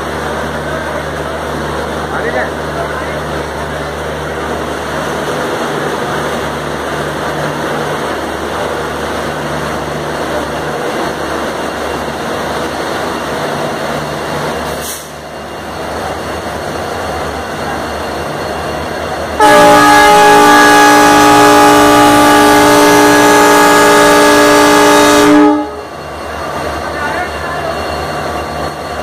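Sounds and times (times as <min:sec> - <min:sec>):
train diesel engines idling: 0:00.0 - 0:29.0.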